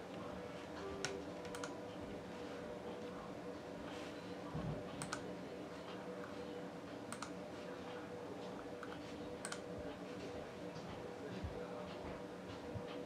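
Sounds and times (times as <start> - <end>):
steady low hum: 0.0 - 13.0
computer mouse clicks: 1.0 - 1.7, 5.0 - 5.3, 7.1 - 7.4, 8.8 - 9.6.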